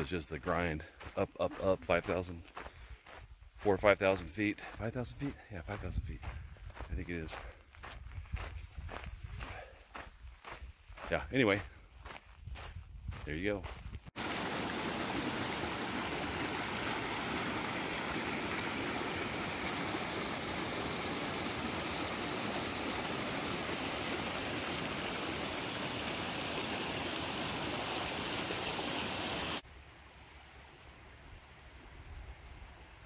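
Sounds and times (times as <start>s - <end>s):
shallow creek flowing gently: 0.0s - 4.2s, 14.2s - 33.0s
mountain stream rushing over rocks: 14.2s - 29.6s.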